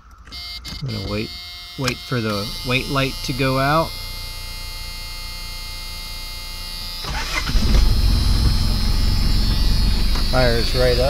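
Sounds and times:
steady hum: 0:00.0 - 0:11.0
diesel engine idling: 0:02.4 - 0:11.0
diesel engine cranking and starting: 0:07.0 - 0:11.0.

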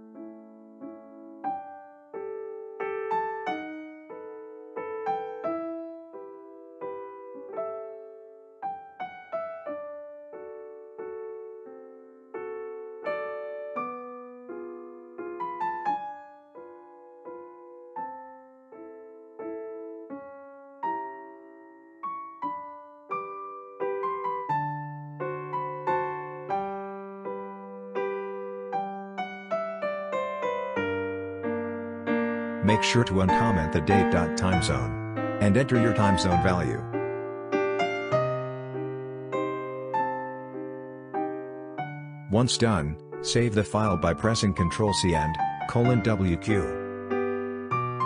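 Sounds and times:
slow piano melody: 0:00.0 - 0:48.0
keyboard melody over bass note: 0:32.6 - 0:37.2, 0:42.2 - 0:46.9.

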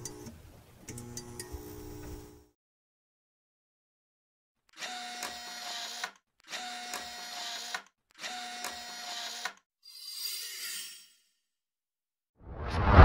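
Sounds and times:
whoosh: 0:12.4 - 0:13.0.

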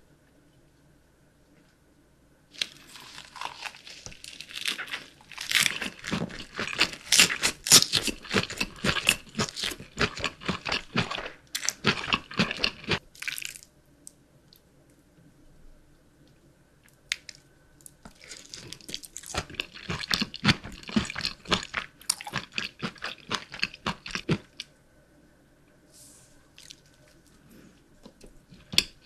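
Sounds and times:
crunchy chewing: 0:02.6 - 0:13.6, 0:18.0 - 0:24.7.

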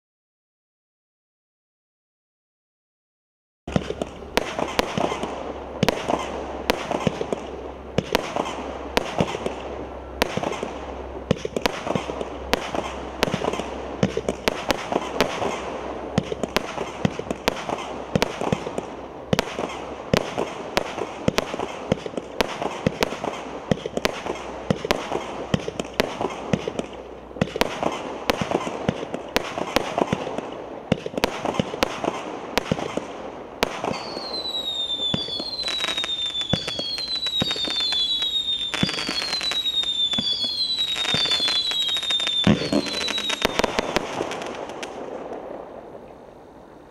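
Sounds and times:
fireworks reports: 0:03.7 - 0:46.0
fireworks crackling: 0:03.7 - 0:46.9.

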